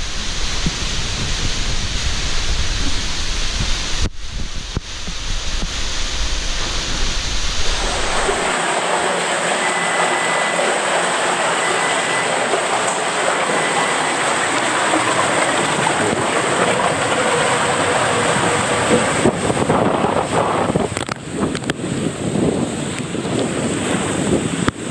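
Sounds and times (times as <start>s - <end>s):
low rumble: 0.0s - 10.6s
water rushing through slide tube: 0.0s - 24.9s.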